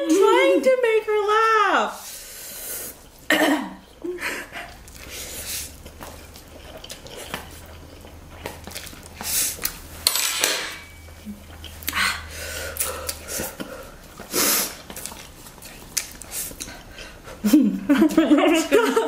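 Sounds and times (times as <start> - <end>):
noodles slurped and chewed: 2.0 - 10.0, 11.1 - 17.5.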